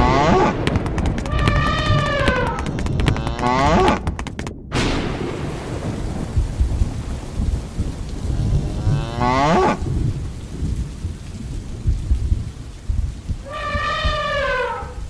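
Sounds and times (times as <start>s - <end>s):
low thunder rumbling: 0.0s - 15.0s
steady rain: 0.0s - 15.0s
thunderclap: 0.0s - 15.0s
cow mooing: 8.3s - 9.8s, 13.5s - 15.0s.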